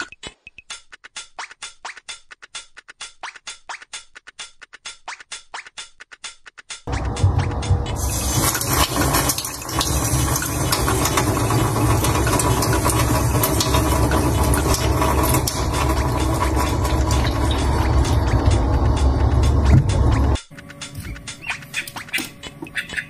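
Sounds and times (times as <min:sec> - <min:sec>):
tap water splashing into sink: 0:08.0 - 0:18.2.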